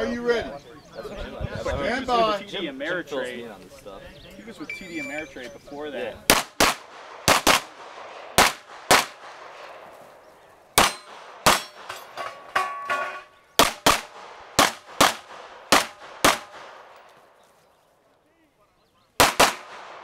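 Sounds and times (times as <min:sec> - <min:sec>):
handgun shots in pairs: 0:06.3 - 0:09.7, 0:10.8 - 0:12.2, 0:13.6 - 0:17.0, 0:19.2 - 0:20.0.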